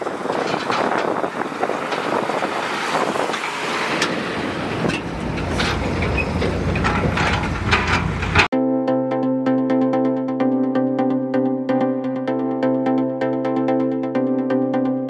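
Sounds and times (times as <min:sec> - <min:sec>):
diesel engine rumbling: 0:00.0 - 0:08.5
dirt and stones clattering: 0:00.2 - 0:08.5.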